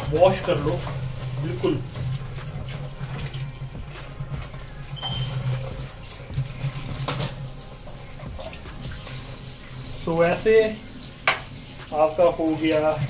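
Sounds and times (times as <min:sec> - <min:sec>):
tap water running into sink: 0:00.0 - 0:13.0
water splashing: 0:00.0 - 0:13.0.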